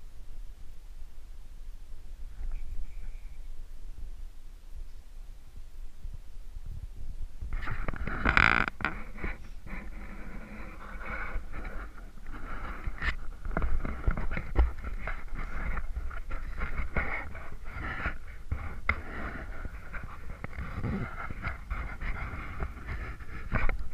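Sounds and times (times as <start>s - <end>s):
wind rumble on microphone: 0.0s - 23.9s.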